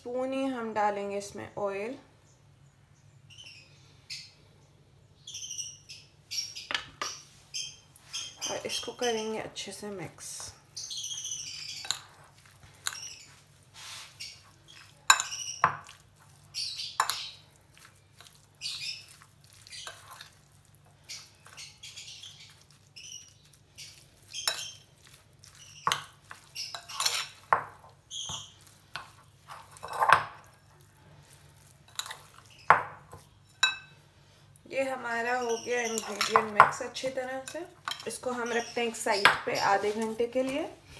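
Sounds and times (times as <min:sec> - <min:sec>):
spoon scraping glass bowl: 0:11.1 - 0:30.6, 0:31.6 - 0:34.0, 0:35.4 - 0:40.6.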